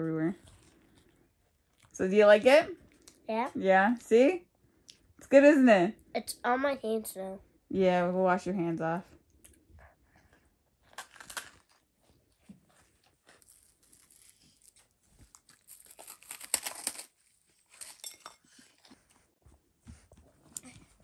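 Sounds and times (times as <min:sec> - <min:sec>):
food crinkling and crunching: 0:00.4 - 0:02.0, 0:10.8 - 0:19.3.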